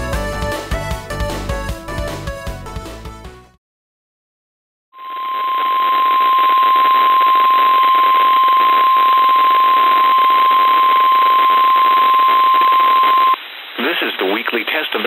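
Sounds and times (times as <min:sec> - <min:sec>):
steady alarm tone: 0:05.0 - 0:13.4
radio signal hiss: 0:05.0 - 0:15.0.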